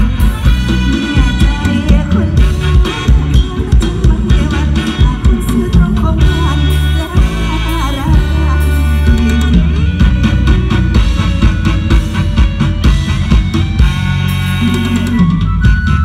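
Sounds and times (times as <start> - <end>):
person singing: 0.0 - 10.1, 14.6 - 15.5
drum kit beat: 0.0 - 16.0
live band music: 0.0 - 16.0.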